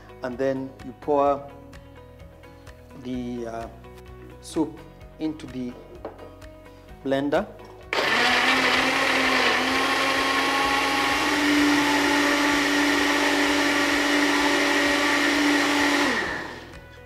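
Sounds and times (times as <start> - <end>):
blender motor running: 7.9 - 16.8.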